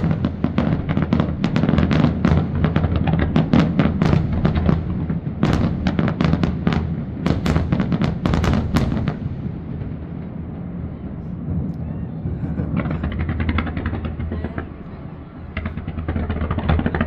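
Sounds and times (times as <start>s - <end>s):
firework bursts and bangs: 0.0s - 17.0s
low rumble: 10.3s - 17.0s.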